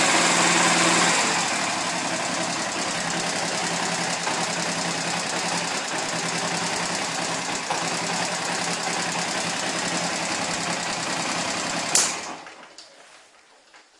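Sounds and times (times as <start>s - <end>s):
motorcycle engine idling: 0.0s - 12.5s
sharp click: 11.9s - 12.3s.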